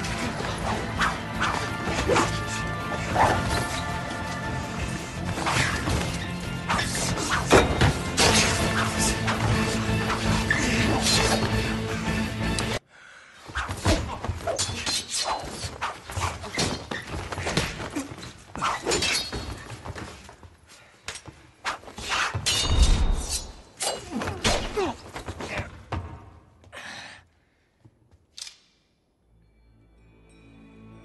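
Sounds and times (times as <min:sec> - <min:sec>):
background music: 0:00.0 - 0:12.9, 0:29.2 - 0:31.0
metal blades clashing: 0:05.4 - 0:09.5.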